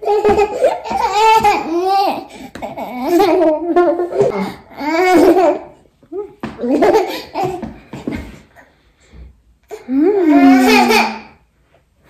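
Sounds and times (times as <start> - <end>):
baby laughing and babbling: 0.0 - 7.7, 9.7 - 11.4.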